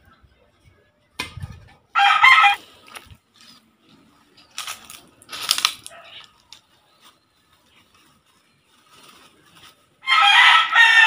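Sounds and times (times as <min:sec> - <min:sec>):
plastic bag rustling: 0:04.2 - 0:10.0.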